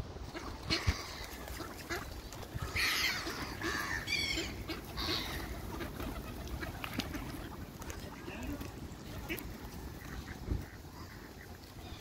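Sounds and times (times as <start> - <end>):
ducks quacking: 0.2 - 12.0
harsh bird calls: 2.6 - 6.4.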